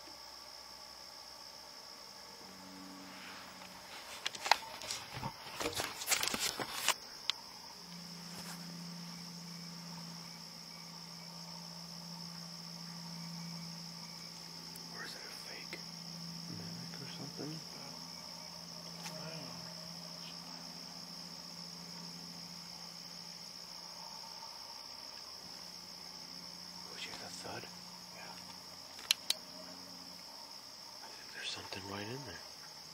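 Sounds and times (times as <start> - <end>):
crickets chirring: 0.0 - 32.9
low hum: 0.5 - 30.6
faint ticks and rustles: 26.9 - 30.3.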